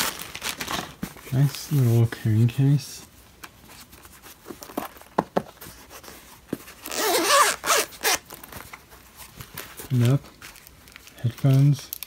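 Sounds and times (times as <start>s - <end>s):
zipper being pulled open: 6.8s - 8.2s.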